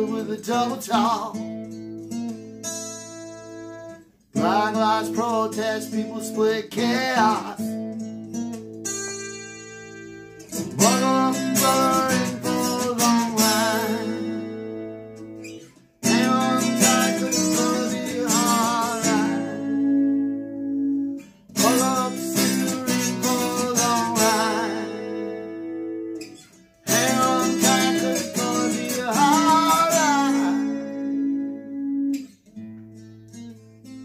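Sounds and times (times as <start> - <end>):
man singing: 0.0 - 1.5, 4.4 - 7.8, 10.7 - 14.9, 16.0 - 20.8, 21.6 - 25.6, 26.8 - 32.0
acoustic guitar strummed and picked: 0.0 - 34.0.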